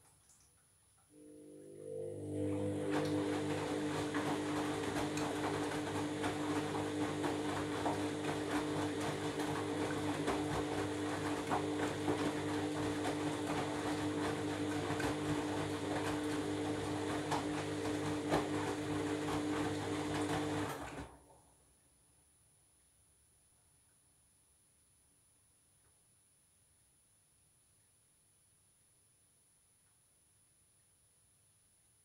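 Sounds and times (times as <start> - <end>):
washing machine motor whine: 1.1 - 21.2.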